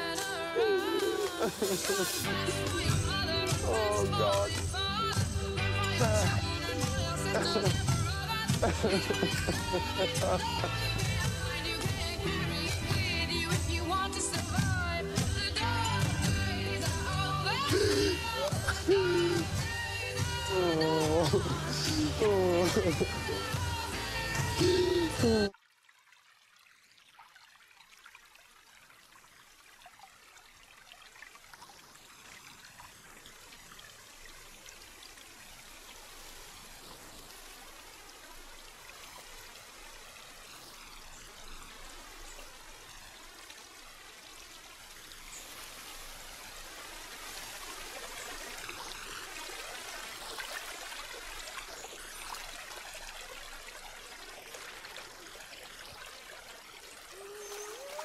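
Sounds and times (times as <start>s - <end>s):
stream cascading over rocks: 0.0s - 58.0s.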